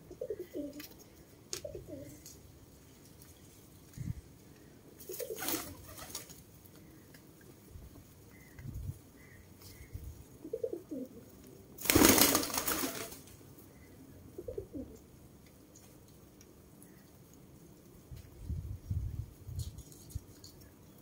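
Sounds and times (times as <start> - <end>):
pigeons cooing: 0.0 - 2.3, 5.0 - 6.2, 9.2 - 11.4, 14.3 - 15.0.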